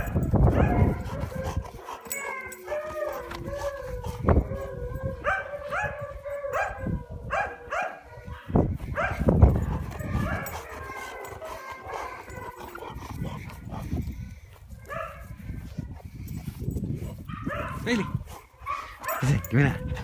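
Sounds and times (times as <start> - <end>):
dog whining and yelping: 0.0 - 14.4, 18.6 - 20.0
dull low thumps: 8.6 - 10.5.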